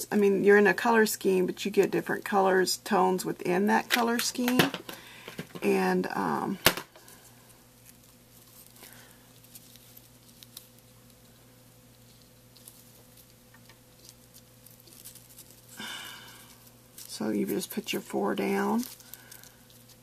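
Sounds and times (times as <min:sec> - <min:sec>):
low steady hum: 0:00.0 - 0:20.0
paper petals rustling: 0:07.0 - 0:20.0.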